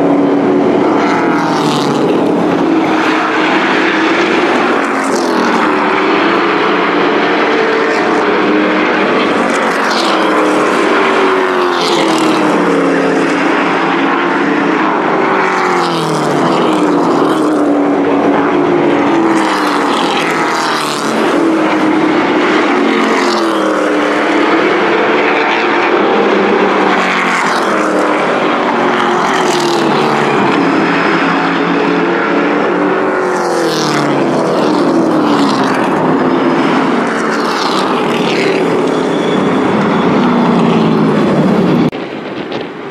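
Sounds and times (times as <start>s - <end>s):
race truck engines passing: 0.0s - 42.9s.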